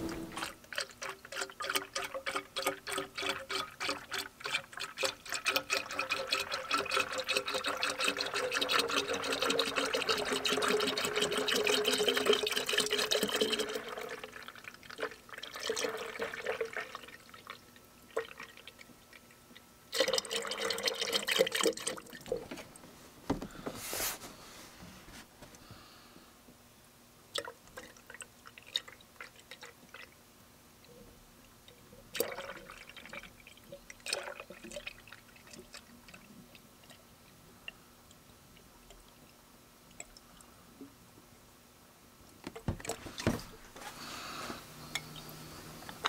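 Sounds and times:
liquid glugging from plastic jug: 0:42.5 - 0:44.0.

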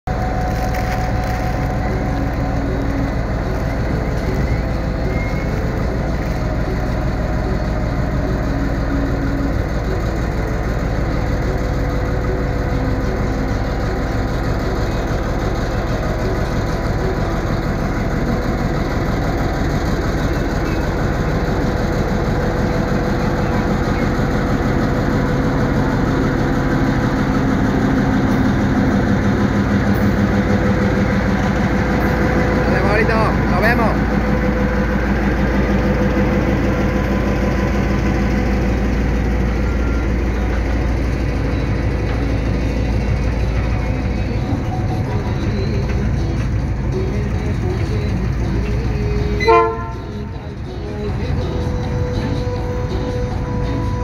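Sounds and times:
diesel locomotive engine running: 0:00.0 - 0:54.0.

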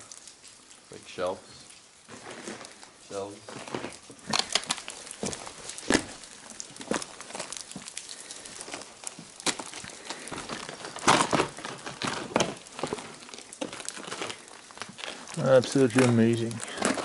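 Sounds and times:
footsteps crunching on loose rock: 0:03.4 - 0:17.0.

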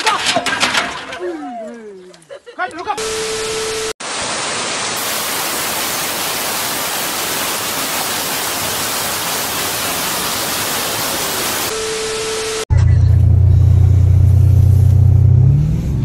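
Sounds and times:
heavy rain pouring onto street: 0:04.0 - 0:11.7
tv static hiss with steady tone: 0:05.0 - 0:12.6.

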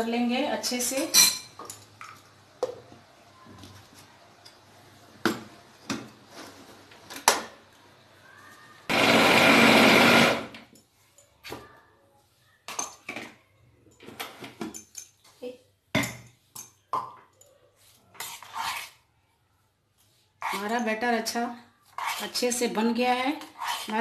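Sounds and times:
mixer grinder running: 0:08.9 - 0:10.6.

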